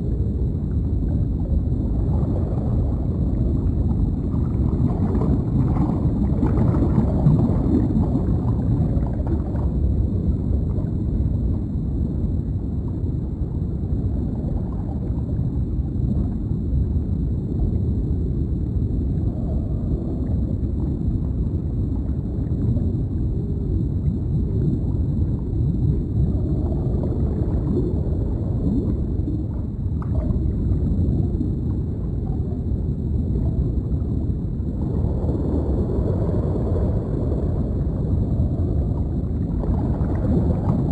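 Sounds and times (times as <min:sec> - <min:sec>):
bubbling gurgles: 0:00.0 - 0:40.9
low underwater rumble: 0:00.0 - 0:40.9.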